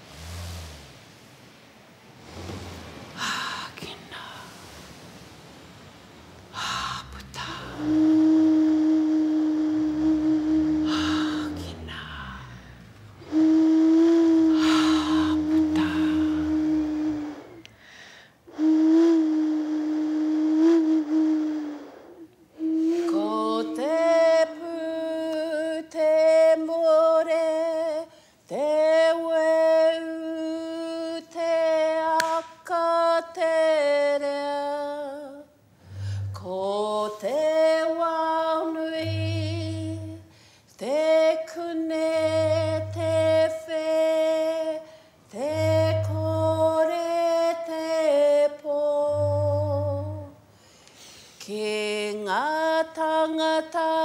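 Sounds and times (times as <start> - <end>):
woman singing held notes: 6.6 - 17.4, 22.6 - 27.8, 30.3 - 40.2, 40.8 - 50.4
low booming pulse: 7.0 - 17.3, 35.8 - 36.5, 39.1 - 40.2, 42.3 - 43.5, 45.6 - 46.8, 49.2 - 50.3.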